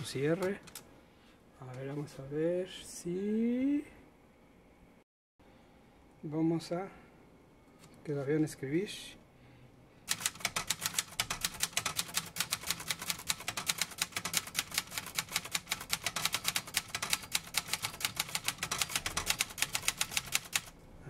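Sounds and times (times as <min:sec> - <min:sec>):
manual typewriter typing: 0:00.0 - 0:00.8, 0:10.1 - 0:20.7.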